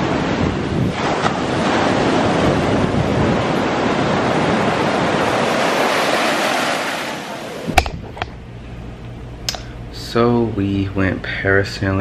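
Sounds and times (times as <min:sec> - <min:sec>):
ocean surf breaking: 0:00.0 - 0:07.8.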